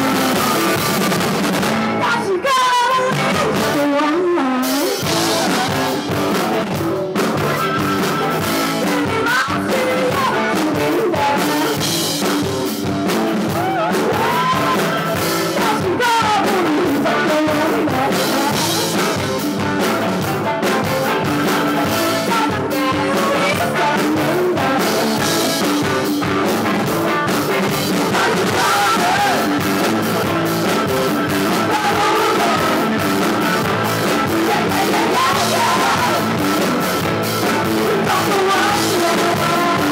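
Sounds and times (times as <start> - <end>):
live rock band playing: 0.0 - 39.9
woman singing: 2.0 - 6.0, 8.6 - 11.9, 13.6 - 19.0, 21.8 - 25.6, 28.0 - 29.5, 31.5 - 33.0, 34.2 - 36.4, 37.7 - 39.9.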